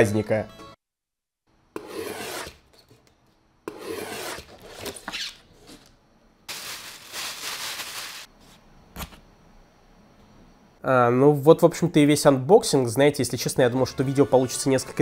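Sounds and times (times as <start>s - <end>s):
paper rustling and scraping: 6.5s - 8.6s.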